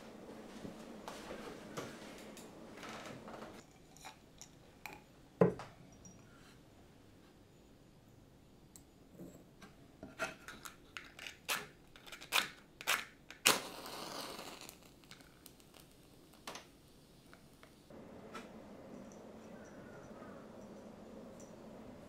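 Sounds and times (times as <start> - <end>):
match striking and flaring: 13.3 - 16.1.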